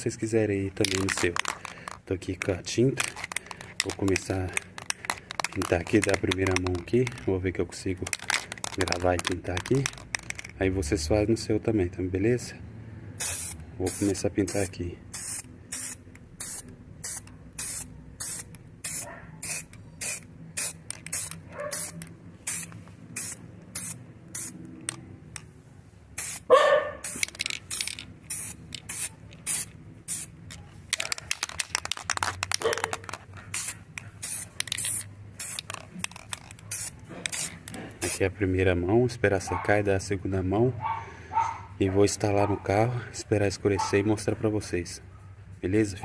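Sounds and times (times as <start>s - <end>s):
spray paint can hissing: 0.8s - 7.2s, 8.0s - 10.5s, 13.2s - 25.0s, 26.2s - 38.2s.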